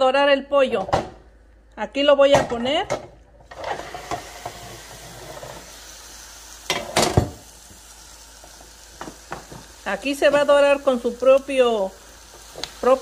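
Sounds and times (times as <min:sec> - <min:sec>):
chicken sizzling in a pan: 0:03.5 - 0:13.0
knock of pan or utensil: 0:06.7 - 0:07.4.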